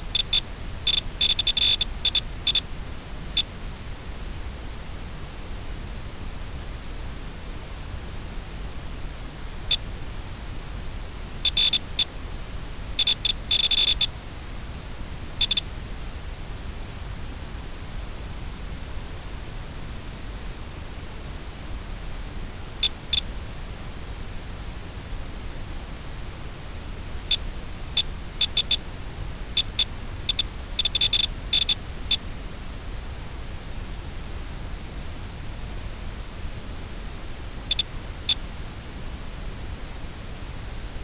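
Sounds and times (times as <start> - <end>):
steady hiss: 0.0 - 41.0
short high-pitched electronic beeps: 0.1 - 2.6, 11.5 - 12.1, 13.0 - 14.1, 15.4 - 15.6, 28.0 - 28.8, 29.6 - 31.8.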